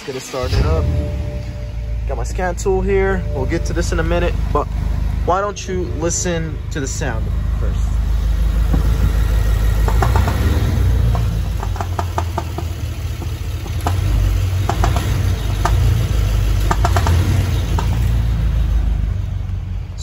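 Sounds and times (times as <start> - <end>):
car engine idling: 0.0 - 20.0
sharp ticking knocks: 8.6 - 18.4.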